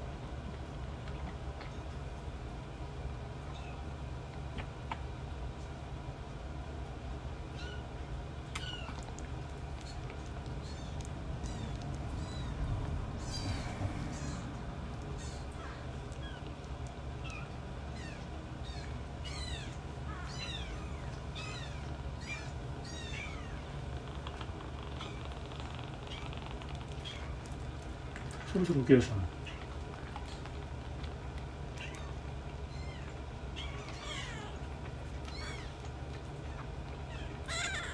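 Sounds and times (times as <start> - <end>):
steady low hum: 0.0 - 37.9
kittens mewing: 7.5 - 27.4, 31.7 - 37.9.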